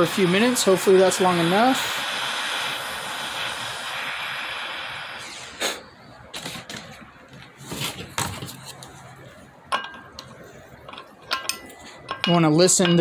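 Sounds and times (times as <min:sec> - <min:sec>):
torch flame hissing: 0:00.0 - 0:06.7
metal wrenches clinking: 0:10.9 - 0:13.0.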